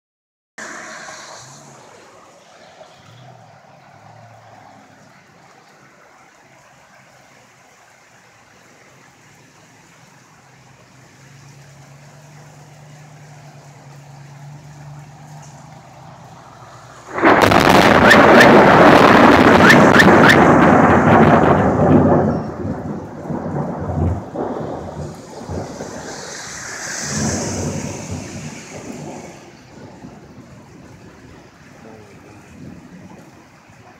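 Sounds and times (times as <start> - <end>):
steady rain: 0.6 - 33.9
loud thunderclap crackling: 16.9 - 31.7.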